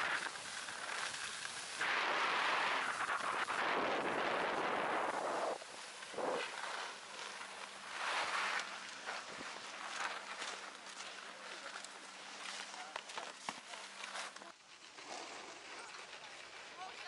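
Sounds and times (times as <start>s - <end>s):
skis scraping over snow: 0.0s - 17.0s
wind on microphone: 1.8s - 6.9s.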